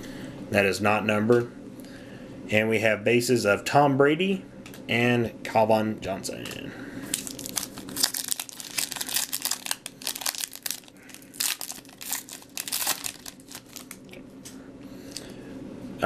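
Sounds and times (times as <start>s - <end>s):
trading cards crackling and crinkling: 7.1s - 15.3s.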